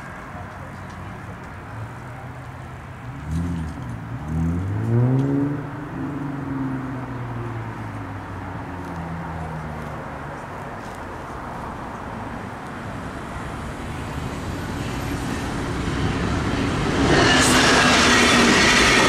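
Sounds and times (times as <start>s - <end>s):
engine revving: 3.2s - 6.2s.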